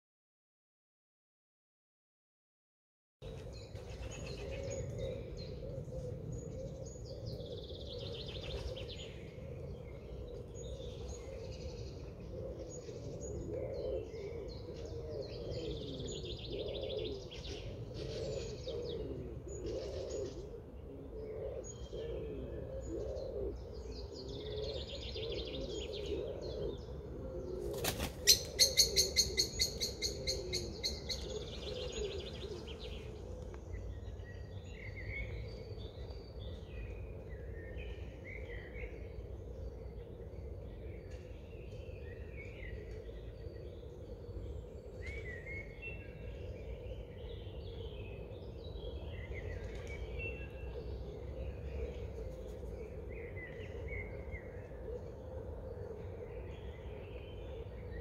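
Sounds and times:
birds chirping and calling: 3.2s - 58.0s
bird wingbeats: 27.6s - 28.6s.

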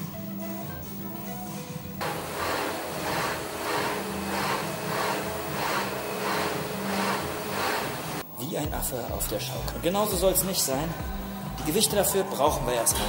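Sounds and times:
exercise machine frame swishing: 2.0s - 8.2s.

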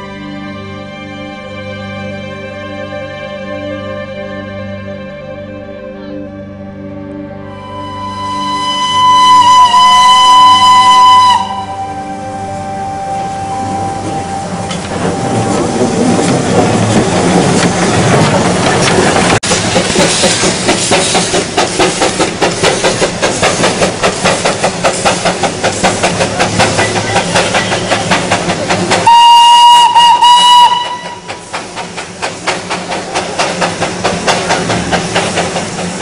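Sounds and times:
steam whistle blast: 7.5s - 14.8s, 29.0s - 31.4s
steam locomotive chuffing: 13.9s - 36.0s.

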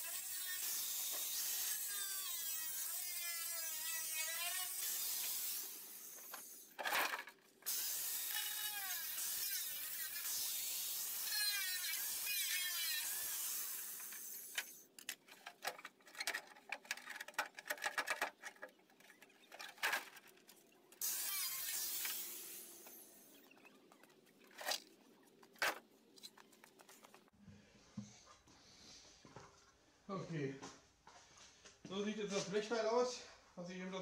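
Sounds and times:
angle grinder cutting metal: 0.0s - 14.8s, 21.0s - 24.8s.

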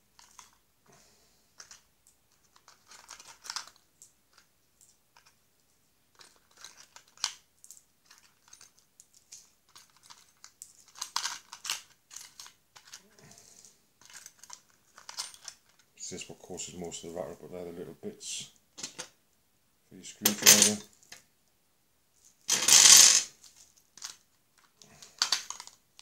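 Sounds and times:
metal tool bits knocking together: 20.3s - 20.9s.

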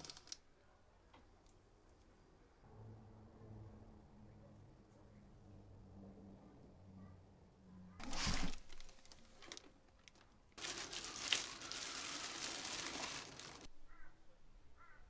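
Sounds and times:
plastic wrapping crinkling: 0.0s - 0.4s, 8.0s - 13.7s
low bump: 2.6s - 6.4s.

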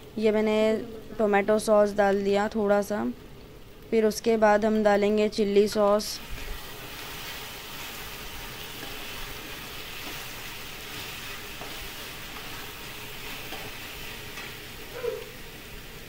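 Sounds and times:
vegetables sizzling in a wok: 5.6s - 16.0s.

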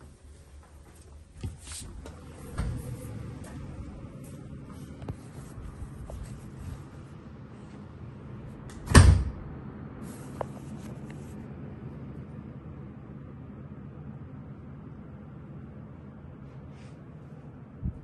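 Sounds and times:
door banging shut: 8.8s - 9.3s.

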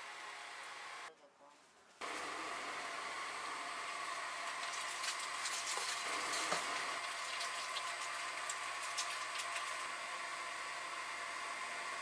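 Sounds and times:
food frying in hot oil: 4.2s - 10.7s.

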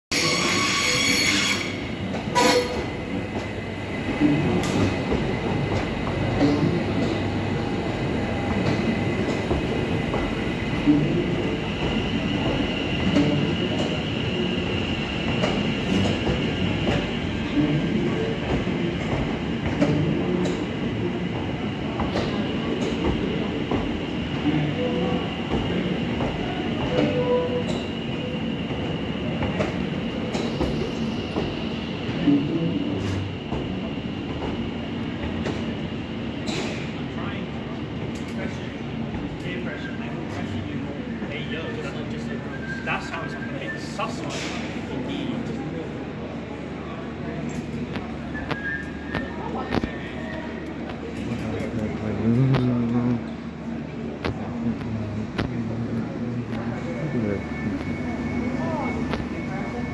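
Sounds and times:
high-pitched wheel squeal: 0.1s - 1.8s.

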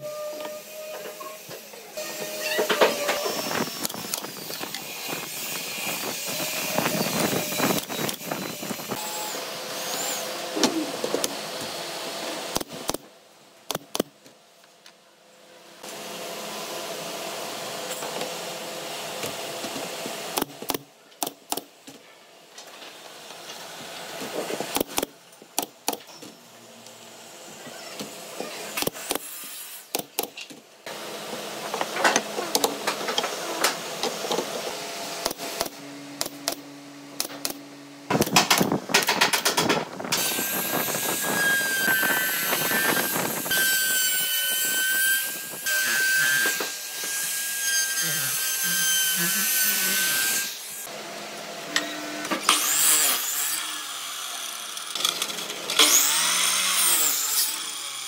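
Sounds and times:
pneumatic nailer snaps: 24.7s - 26.1s, 28.8s - 29.3s, 35.2s - 36.6s, 37.2s - 39.8s.

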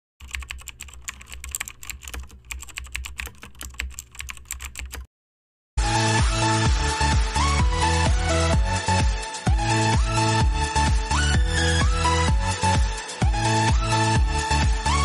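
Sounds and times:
keyboard typing clicks: 0.2s - 5.1s
electronic dance music: 5.8s - 15.0s.

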